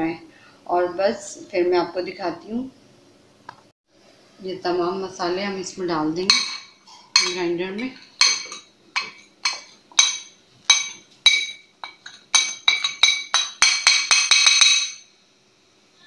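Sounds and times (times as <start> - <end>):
glass bowl clinking against jar: 6.3 - 15.1.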